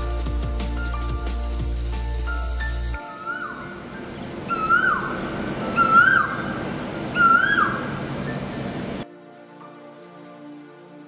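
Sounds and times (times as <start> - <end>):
bird whistling call: 3.0 - 8.7.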